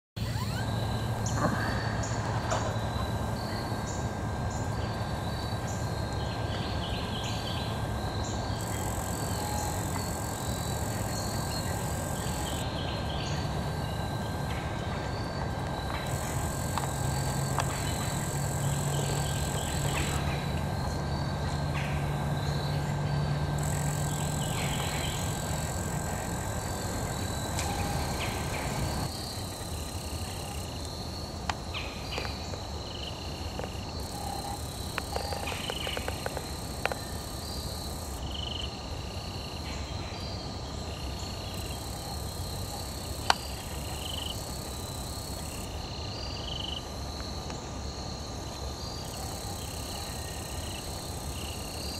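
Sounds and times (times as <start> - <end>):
low steady hum: 0.2 - 38.5
insect chorus: 0.2 - 51.9.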